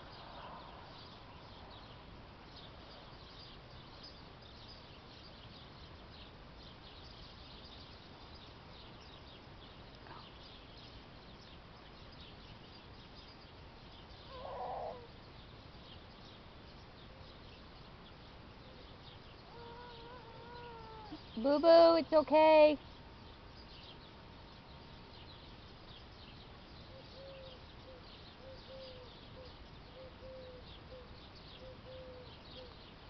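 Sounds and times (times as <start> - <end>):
faint high chirping: 10.0 - 21.9.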